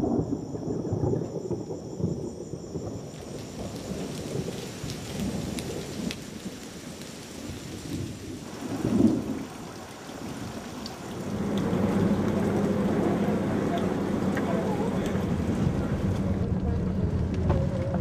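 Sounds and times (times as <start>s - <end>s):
rain falling on water: 0.0s - 18.0s
low rumbling: 11.2s - 18.0s.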